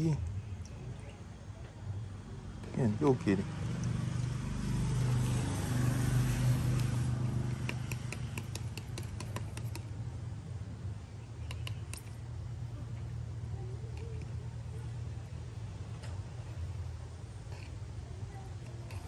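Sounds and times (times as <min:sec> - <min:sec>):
stick clicking against plastic cup: 0:06.7 - 0:09.9, 0:11.4 - 0:12.2.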